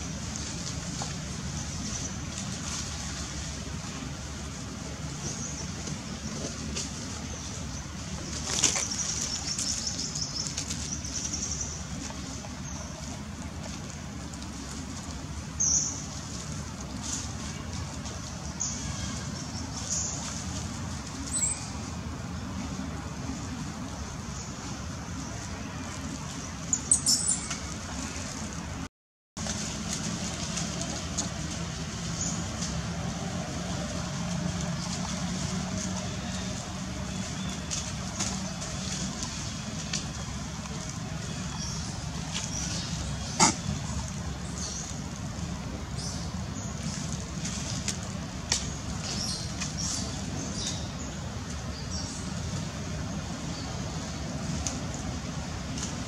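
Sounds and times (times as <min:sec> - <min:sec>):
dry leaves crackling: 0:00.0 - 0:28.8, 0:29.4 - 0:56.0
low outdoor background hum: 0:00.0 - 0:56.0.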